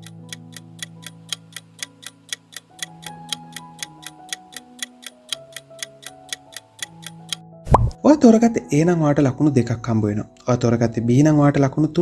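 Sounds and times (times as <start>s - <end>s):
clock-like ticking: 0.0s - 7.4s.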